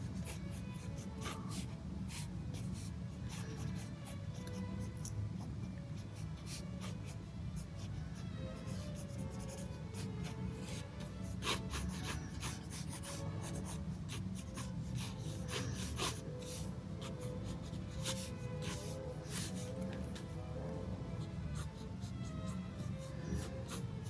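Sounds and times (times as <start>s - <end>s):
soft background music: 0.0s - 24.0s
pen scratching on paper: 0.2s - 4.2s, 8.6s - 19.8s, 22.8s - 23.9s.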